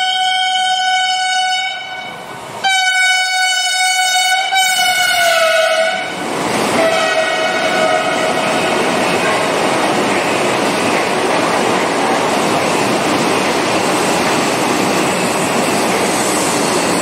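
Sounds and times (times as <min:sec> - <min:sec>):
train horn blasts: 0:00.0 - 0:06.2, 0:06.8 - 0:08.6
train rushing and rattling by: 0:00.0 - 0:17.0.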